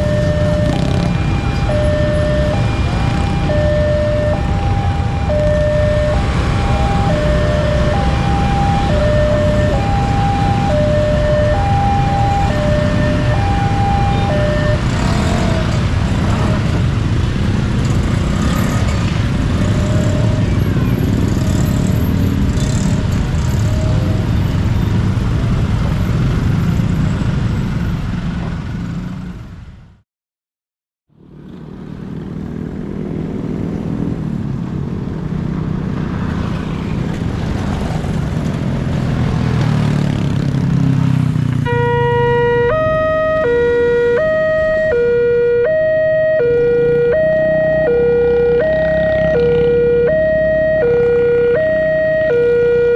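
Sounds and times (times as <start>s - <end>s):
level crossing warning alarm: 0.0s - 15.7s, 41.6s - 52.9s
motorcycle: 0.0s - 30.0s, 31.1s - 52.9s
road vehicle rumble: 0.0s - 30.0s, 31.1s - 52.9s.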